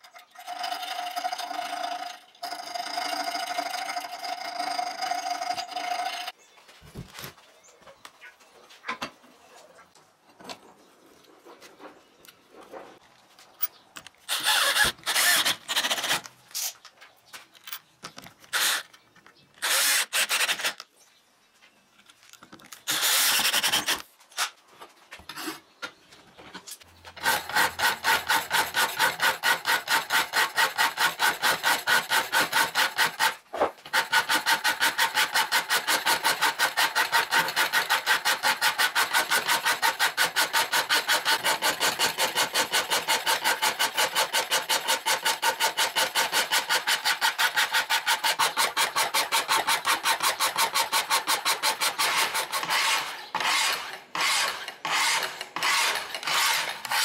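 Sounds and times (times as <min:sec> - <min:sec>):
screws driven into wood: 0:14.0 - 0:16.8, 0:18.1 - 0:19.0, 0:19.6 - 0:20.9, 0:22.7 - 0:24.6, 0:27.2 - 0:57.0
hand file rasping on steel: 0:27.2 - 0:33.4, 0:34.0 - 0:57.0.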